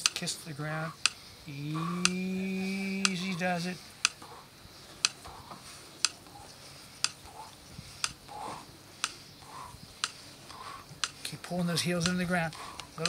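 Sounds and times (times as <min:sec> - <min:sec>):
timer ticking: 0:01.0 - 0:04.3, 0:07.0 - 0:07.4, 0:08.0 - 0:08.4, 0:12.0 - 0:13.0.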